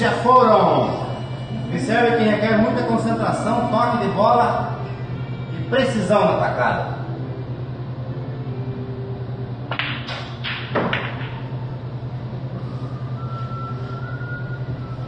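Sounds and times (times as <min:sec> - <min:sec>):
steady low hum: 0:00.0 - 0:15.0
pool balls clicking together: 0:09.7 - 0:11.4
cue striking ball: 0:09.7 - 0:11.8.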